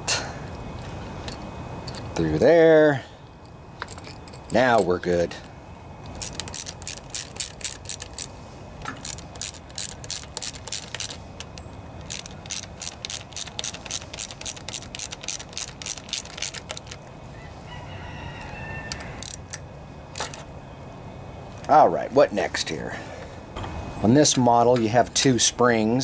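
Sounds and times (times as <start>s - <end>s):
socket ratchet clicking: 6.0s - 17.1s, 18.9s - 20.4s.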